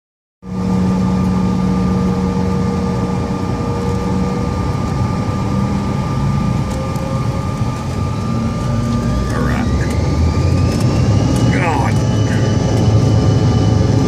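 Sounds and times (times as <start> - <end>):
jet engines and rolling rumble: 0.4 - 14.0
humming tones: 0.5 - 14.0.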